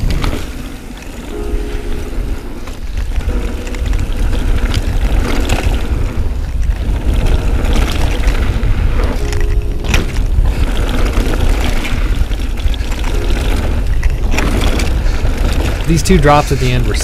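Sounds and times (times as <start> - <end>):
bike rattling over bumps: 0.0 - 17.0
tyres crunching on dirt: 0.0 - 17.0
wind buffeting microphone: 0.0 - 17.0.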